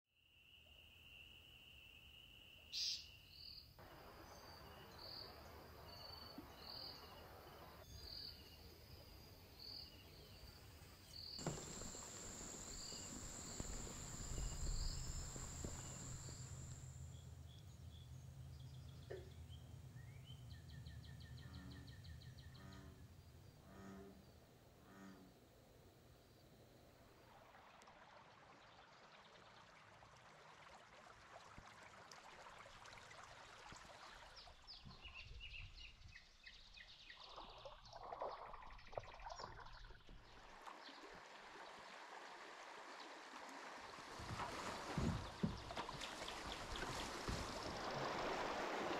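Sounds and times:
insects chirping: 3.8 - 17.3, 44.2 - 48.9.

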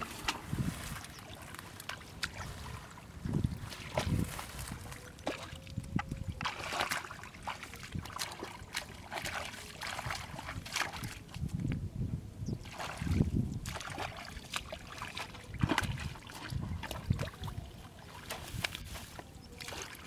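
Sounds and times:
hands splashing in muddy water: 0.0 - 11.5, 12.6 - 20.0
wet mud squelching: 0.0 - 11.5, 12.6 - 20.0.

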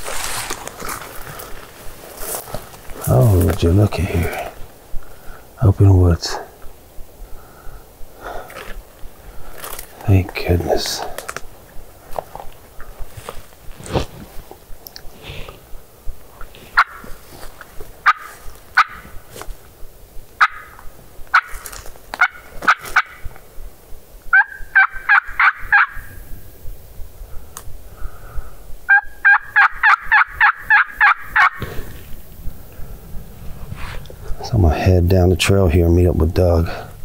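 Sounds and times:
turkey call yelps: 16.7 - 17.1, 18.0 - 19.2, 20.4 - 23.3, 24.3 - 26.2, 28.9 - 31.6.

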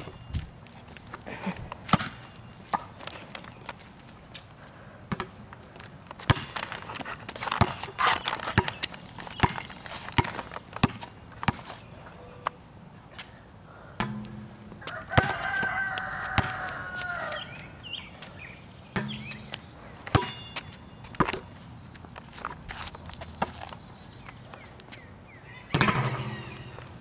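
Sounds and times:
basketball bouncing on concrete: 1.9 - 2.9, 5.1 - 11.6, 14.0 - 17.6, 18.9 - 21.5, 25.7 - 26.8.

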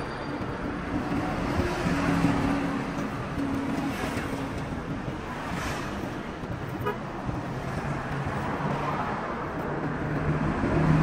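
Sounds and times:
road traffic noise: 0.0 - 11.0
vehicle horn: 6.8 - 7.1.

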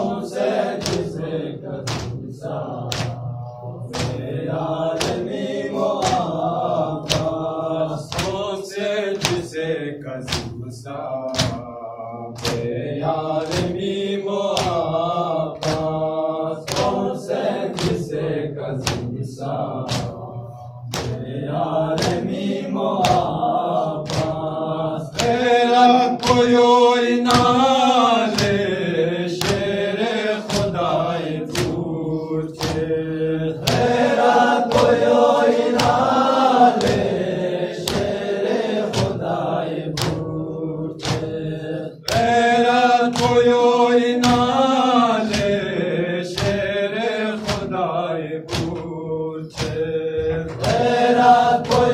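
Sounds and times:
young men chanting a lament: 0.0 - 51.9
chest beating slaps: 0.7 - 8.5, 9.1 - 29.8, 30.4 - 46.8, 47.4 - 47.9, 48.5 - 51.9.

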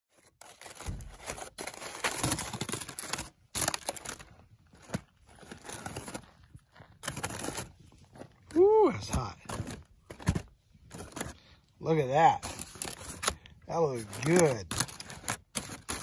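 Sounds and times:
aluminium foil crinkling: 0.1 - 7.9, 12.3 - 16.0.

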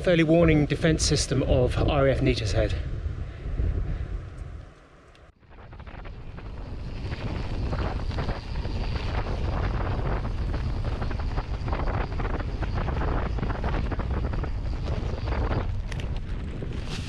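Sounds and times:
wind buffeting microphone: 0.0 - 17.0
bike tyres rumbling on dirt: 5.4 - 17.0
bike knocking and rattling: 5.9 - 17.0.

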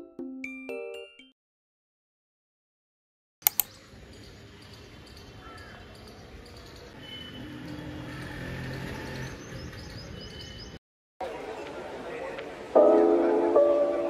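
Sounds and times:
sharp clicks: 3.4 - 3.7.

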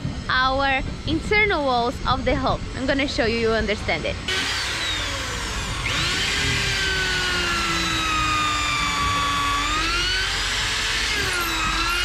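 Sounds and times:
electric drill boring into wood: 4.3 - 12.0.

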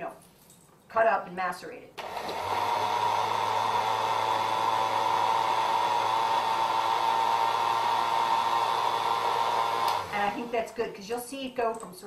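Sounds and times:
blender crushing ice: 2.0 - 10.6.

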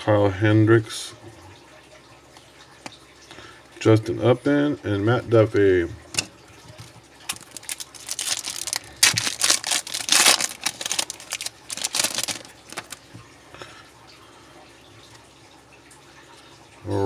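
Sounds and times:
foil wrapper tearing: 7.3 - 13.0.

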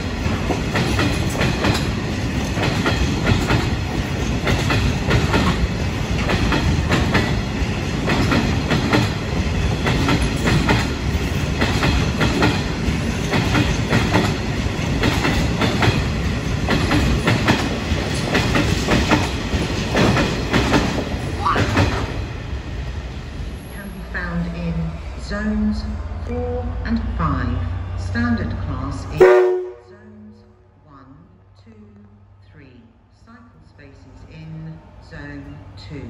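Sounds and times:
wheels clattering over rail joints: 0.0 - 22.2
freight train rumble: 0.0 - 36.0.

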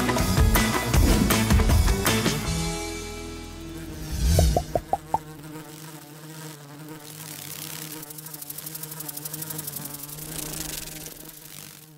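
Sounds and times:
bumblebee buzzing: 3.4 - 11.9.

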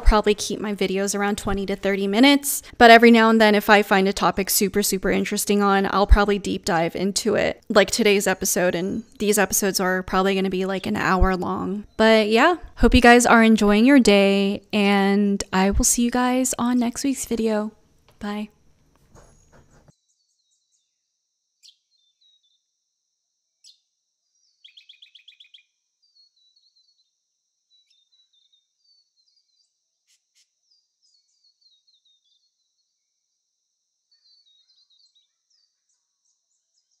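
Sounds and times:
small birds chirping: 0.0 - 22.8, 23.5 - 37.0
rapid bird trill: 21.6 - 22.8, 23.6 - 33.1.

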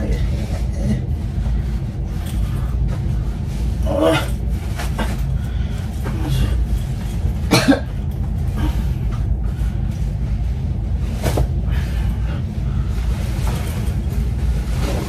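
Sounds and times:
steady low hum: 0.0 - 15.0
person coughing: 7.5 - 8.0.

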